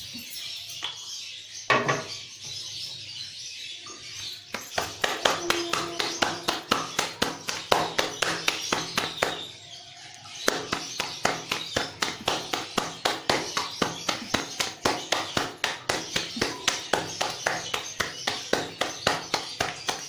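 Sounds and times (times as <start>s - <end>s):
hands slapping dough: 4.5s - 9.5s, 10.4s - 20.0s.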